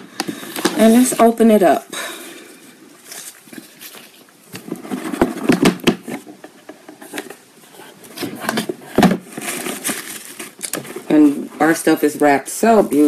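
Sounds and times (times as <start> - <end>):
cardboard box being handled: 3.0 - 11.7.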